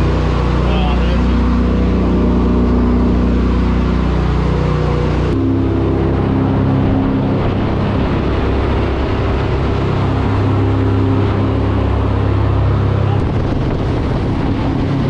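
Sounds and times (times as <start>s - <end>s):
boat engine running: 0.0s - 15.0s
water and wind rushing: 0.0s - 15.0s.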